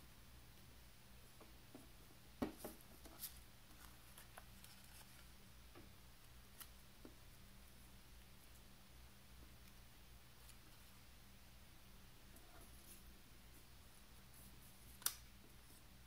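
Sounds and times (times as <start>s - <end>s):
low steady hum: 0.0s - 16.0s
paper rustling: 3.0s - 5.3s.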